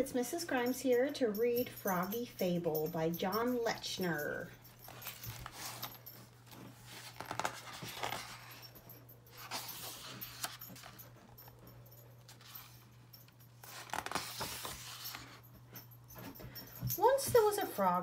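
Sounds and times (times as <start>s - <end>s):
low steady hum: 0.0s - 18.0s
book pages turning: 4.9s - 8.7s, 9.3s - 11.2s, 12.2s - 15.4s.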